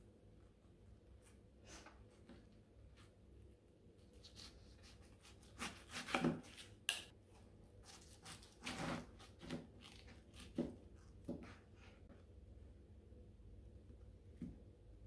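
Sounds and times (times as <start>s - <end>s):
knife crunching through cabbage: 7.8s - 10.8s.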